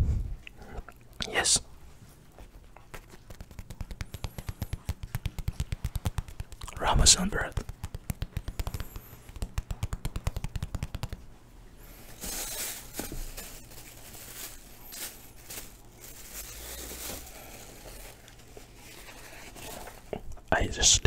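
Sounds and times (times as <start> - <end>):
fingertips tapping on bread crust: 2.8 - 11.3
plastic bag rustling: 11.8 - 20.2.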